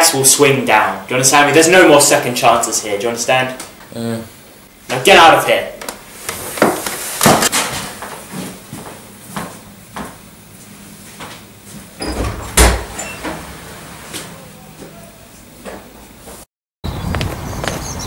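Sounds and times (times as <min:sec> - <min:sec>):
footsteps across a room: 0:05.8 - 0:12.6, 0:14.1 - 0:16.5
door opening and shutting: 0:12.0 - 0:14.4.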